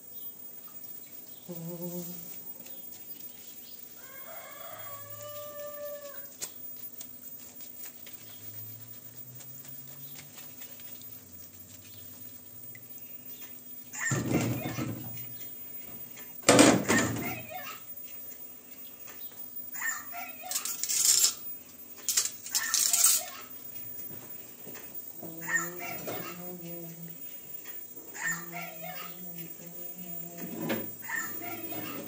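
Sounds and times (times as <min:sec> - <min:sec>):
rooster crowing: 0:04.0 - 0:06.4
water splashing in colander: 0:06.2 - 0:16.4.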